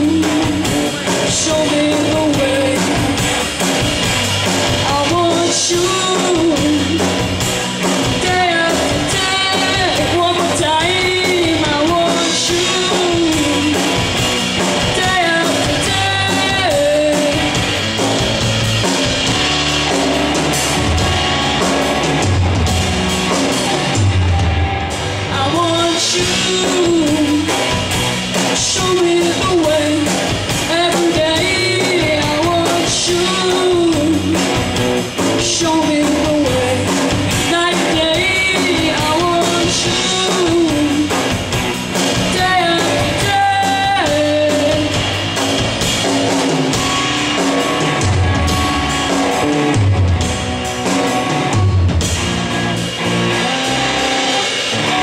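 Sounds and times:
boy singing: 0.0 - 3.2, 4.8 - 7.3, 8.2 - 14.1, 14.8 - 17.6, 25.3 - 27.6, 28.5 - 34.6, 35.4 - 41.3, 42.2 - 45.0
drum kit beat: 0.0 - 55.0
electric guitar: 0.0 - 55.0.

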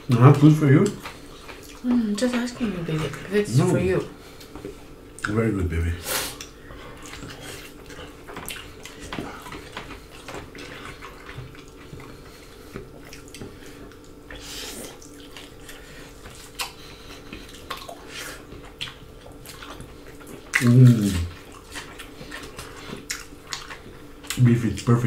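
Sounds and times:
food clicking against plates: 0.1 - 3.3, 6.4 - 14.1
wet chewing and lip smacks: 0.8 - 3.3, 6.3 - 24.5.

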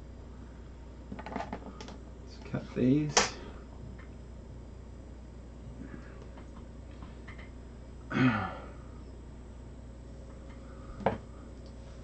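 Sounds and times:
man clearing his throat: 8.1 - 8.7.

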